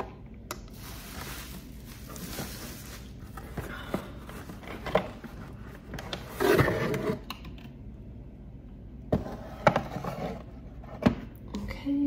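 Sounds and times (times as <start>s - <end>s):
cardboard packaging rustling: 0.7s - 6.9s.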